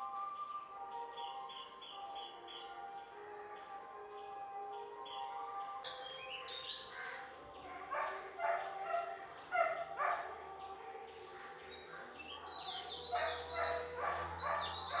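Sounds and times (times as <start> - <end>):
birds calling: 0.0 - 15.0
dog barking: 7.6 - 10.6, 12.4 - 15.0.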